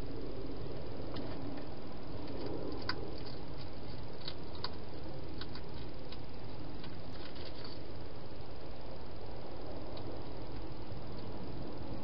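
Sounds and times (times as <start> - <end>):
steady hiss: 0.0 - 12.0
hedgehog crunching food: 1.0 - 7.9.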